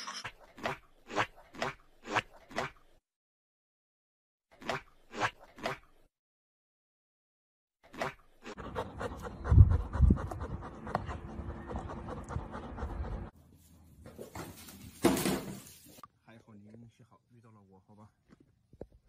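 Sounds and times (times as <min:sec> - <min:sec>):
dog panting: 0:08.5 - 0:13.3.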